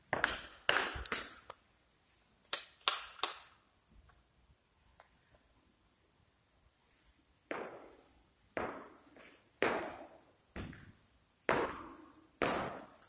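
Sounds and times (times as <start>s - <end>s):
hard-soled footsteps on tiles: 7.6s - 11.8s.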